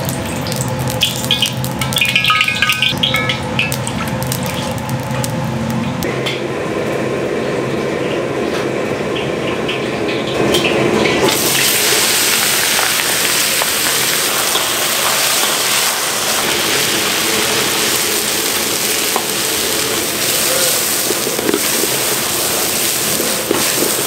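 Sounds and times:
ingredients sizzling in wok: 0.0 - 6.0, 11.2 - 24.0
burner roar: 11.3 - 24.0.

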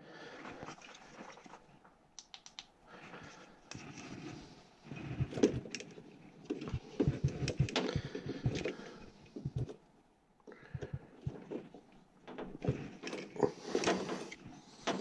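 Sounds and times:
rustling and scraping: 3.0 - 9.8, 10.7 - 15.0
knocks and clicks: 6.5 - 8.8.

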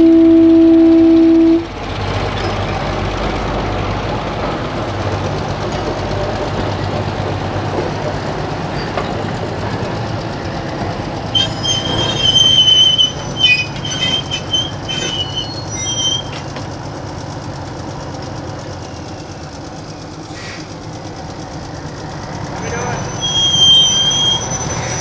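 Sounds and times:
freight train rumbling: 0.0 - 25.0
wheels squealing against rail: 11.3 - 16.6, 22.6 - 25.0.

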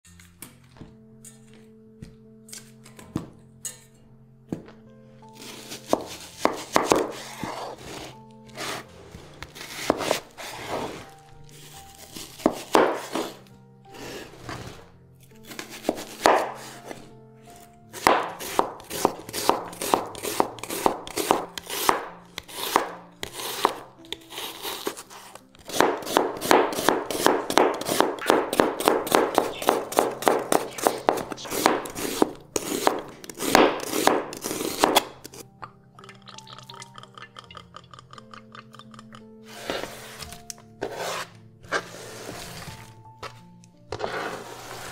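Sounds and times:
background music: 0.0 - 44.9
knife slicing on cutting board: 5.4 - 8.9, 9.5 - 11.1, 12.0 - 13.4, 15.4 - 17.1, 18.0 - 35.3, 39.6 - 42.8, 43.9 - 44.9.

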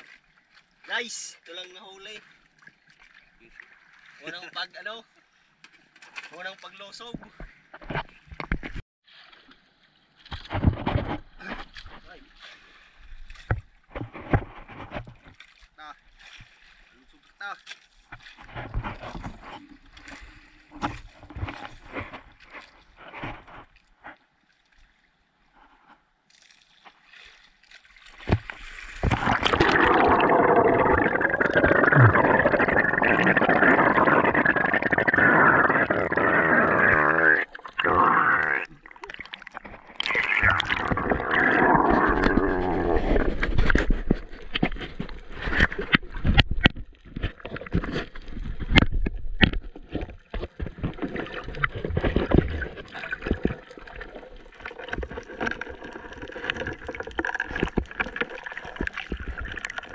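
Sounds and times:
water splashing and gurgling: 7.9 - 25.8, 26.4 - 59.9
underwater sound: 26.9 - 59.9.

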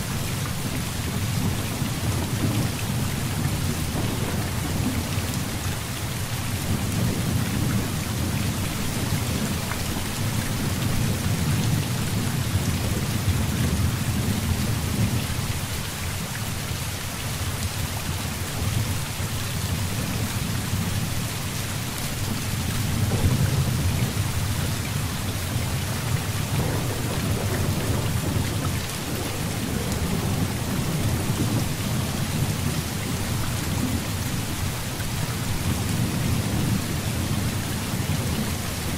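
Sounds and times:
heavy rain falling: 0.0 - 38.9
rolling thunder: 1.1 - 15.2, 22.2 - 34.2.

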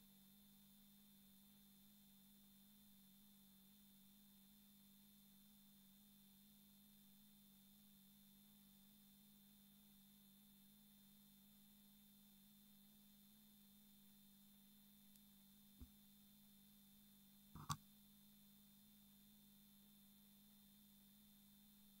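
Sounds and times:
faint steady hum: 0.0 - 22.0
small click: 17.6 - 17.8.

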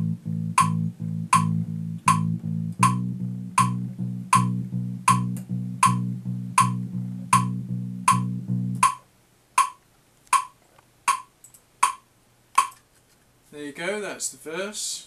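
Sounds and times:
electric bass repeated notes: 0.0 - 9.0
metronome clicks: 0.2 - 9.0, 9.6 - 12.8.

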